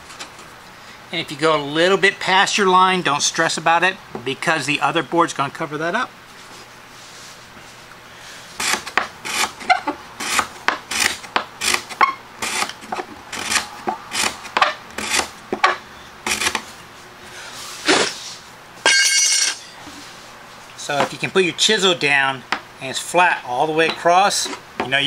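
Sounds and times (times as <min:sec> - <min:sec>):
chisel scraping wood: 0:08.6 - 0:16.7.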